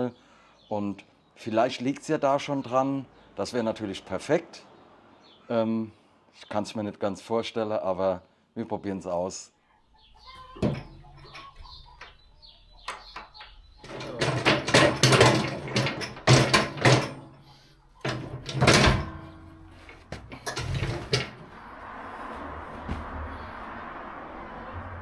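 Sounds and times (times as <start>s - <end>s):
metal clanking and scraping: 13.0s - 21.6s.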